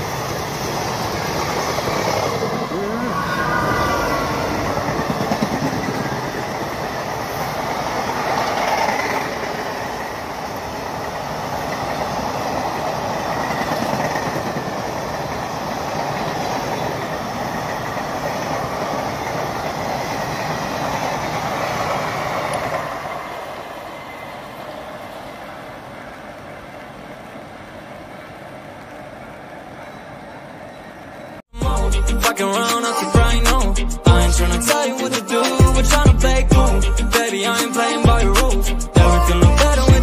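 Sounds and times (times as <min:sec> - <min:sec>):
train wheels rumbling on rails: 0:00.0 - 0:31.4.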